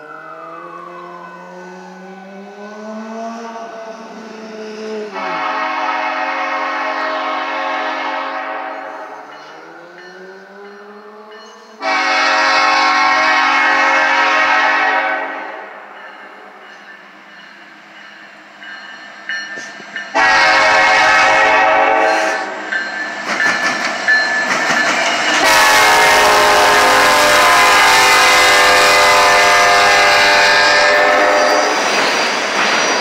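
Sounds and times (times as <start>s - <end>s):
train horn blasts: 5.1s - 9.2s, 11.8s - 15.9s, 20.1s - 22.6s, 25.4s - 31.8s.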